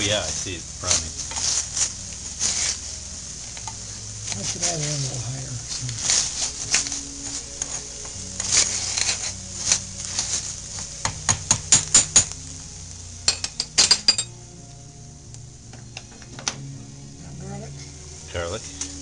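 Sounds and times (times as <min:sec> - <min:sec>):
metal spoon scraping saucepan: 0:06.1 - 0:09.9
spoon clinking against pot: 0:13.3 - 0:14.4.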